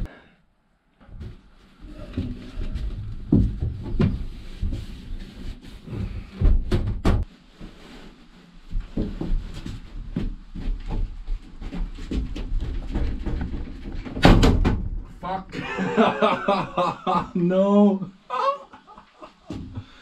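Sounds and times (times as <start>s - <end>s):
knocks and thumps on panelling: 6.4s - 7.3s.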